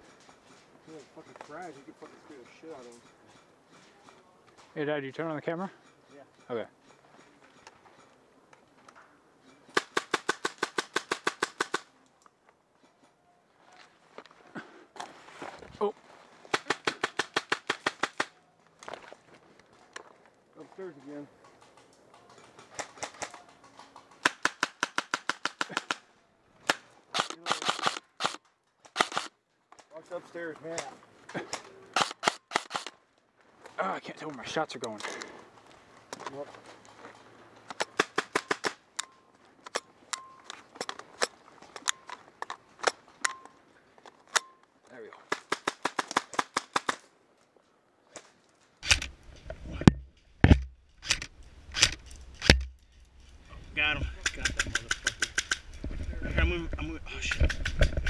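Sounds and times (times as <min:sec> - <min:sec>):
airsoft rifle shots: 0:09.7 - 0:11.9, 0:16.5 - 0:18.4, 0:24.2 - 0:26.0, 0:26.6 - 0:29.3, 0:31.9 - 0:32.9, 0:37.7 - 0:38.8, 0:45.3 - 0:47.0, 0:49.8 - 0:52.7.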